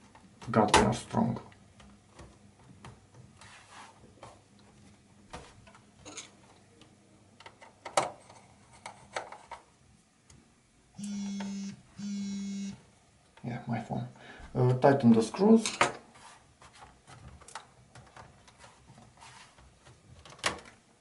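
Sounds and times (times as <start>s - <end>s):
phone vibrating buzzes: 11.0s - 12.8s.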